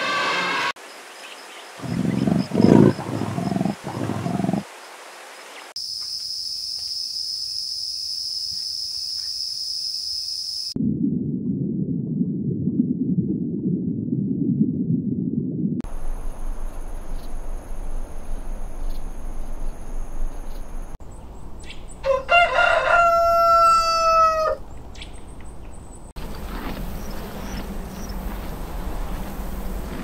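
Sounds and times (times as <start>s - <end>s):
rooster crowing: 22.0s - 24.6s.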